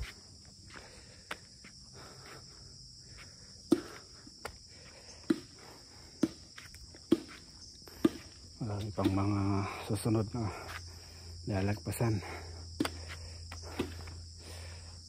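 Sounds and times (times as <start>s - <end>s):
footsteps on paved road: 0.0s - 14.3s
insects droning: 0.0s - 15.0s.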